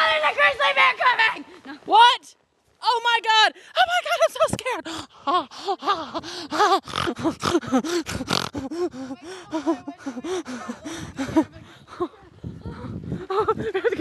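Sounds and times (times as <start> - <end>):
young person panicked gasps and cries: 4.6 - 13.7.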